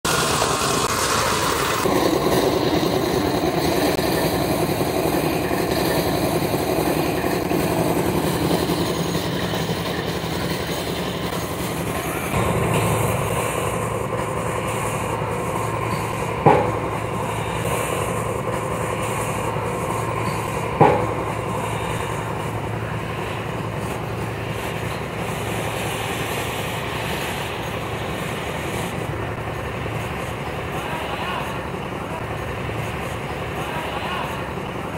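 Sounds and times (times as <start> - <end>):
diesel truck engine running: 0.0 - 34.9
hydraulic hoist raising: 0.0 - 34.9
steady low hum: 0.1 - 34.9
sharp knocks: 15.9 - 17.9, 20.2 - 21.5.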